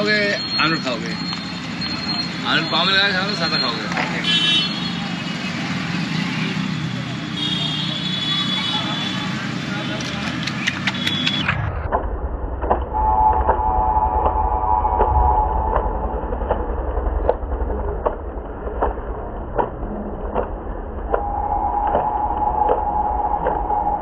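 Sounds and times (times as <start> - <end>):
low rumble: 11.5 - 24.0.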